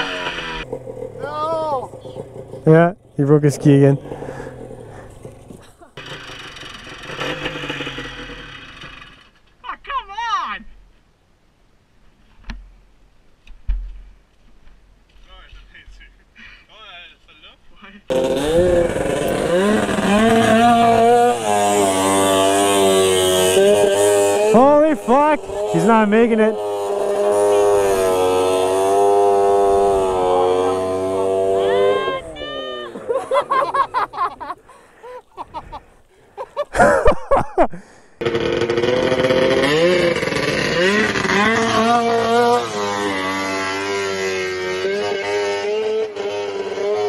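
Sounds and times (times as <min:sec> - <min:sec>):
snowmobile engine revving: 0:00.0 - 0:09.3, 0:18.1 - 0:35.8, 0:36.6 - 0:47.0
people shouting: 0:31.5 - 0:33.3.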